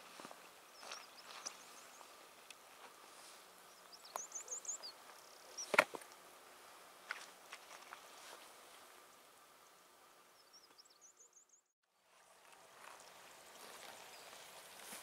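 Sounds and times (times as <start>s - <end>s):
small birds chirping: 0.0s - 6.3s, 9.0s - 11.8s, 12.8s - 14.7s.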